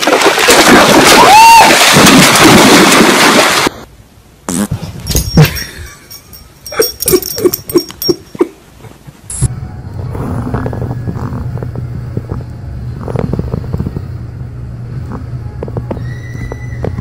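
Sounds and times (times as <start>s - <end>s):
dog splashing through water: 0.0s - 3.8s.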